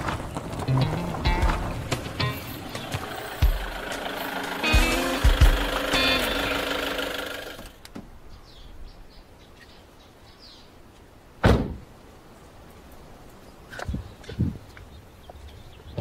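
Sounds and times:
music: 0.7 - 6.8
van door slamming: 11.4 - 11.8.

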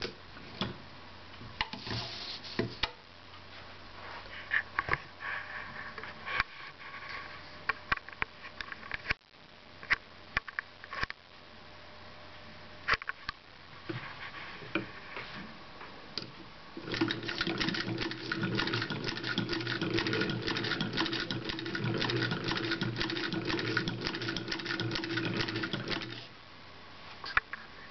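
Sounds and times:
sewing machine stitching: 16.8 - 26.3.

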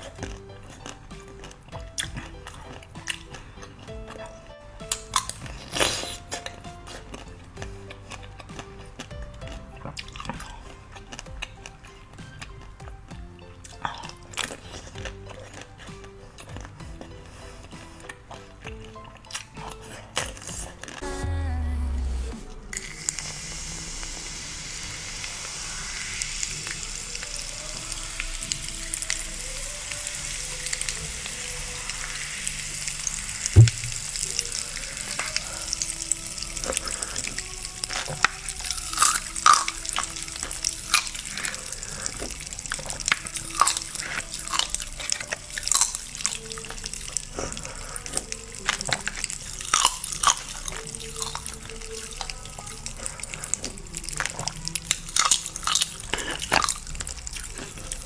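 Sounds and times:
faint background music: 0.0 - 58.0
ice crackling and fizzing: 22.7 - 58.0
heavy thump: 33.6 - 34.0
ice cups cracking and clicking: 35.1 - 58.0.

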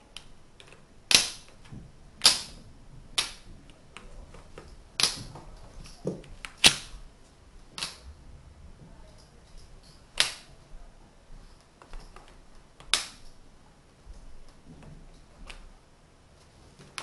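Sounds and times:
magnetic wooden blocks clicking: 0.2 - 6.9, 7.8 - 8.0, 9.1 - 10.5, 11.8 - 13.4.

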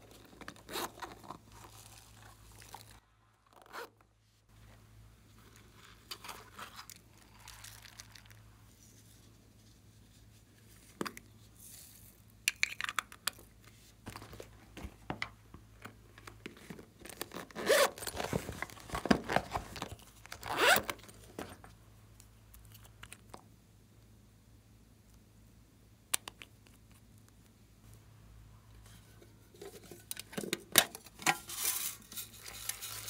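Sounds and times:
sequins rasping and crinkling: 31.1 - 33.0.

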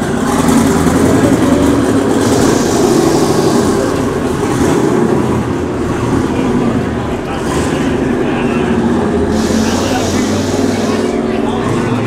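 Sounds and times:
race car engine at low revs: 0.0 - 12.0.

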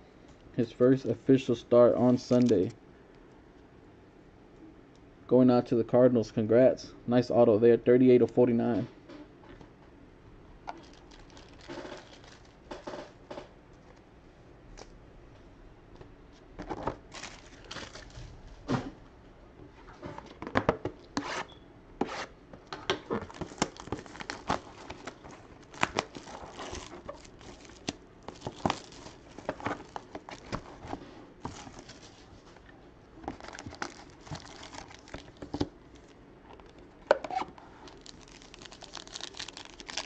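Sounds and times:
packaging being torn and crinkled: 10.7 - 12.6, 17.1 - 18.2, 23.2 - 30.8, 33.3 - 36.8, 37.8 - 40.0.

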